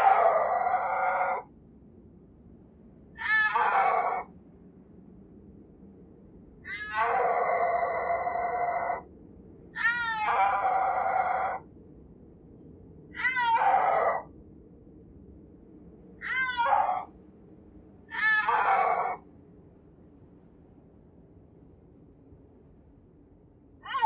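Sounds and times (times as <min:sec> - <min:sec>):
snow leopard mewing yowls: 0:00.0 - 0:01.5, 0:03.2 - 0:04.3, 0:06.7 - 0:09.0, 0:09.8 - 0:11.6, 0:13.2 - 0:14.3, 0:16.2 - 0:17.1, 0:18.1 - 0:19.2.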